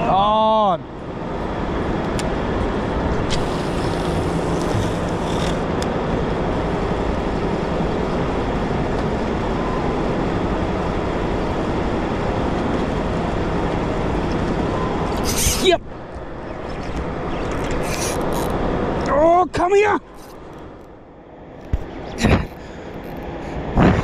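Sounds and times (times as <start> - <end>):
wind: 0.0 - 24.0
boat motor: 1.8 - 15.4.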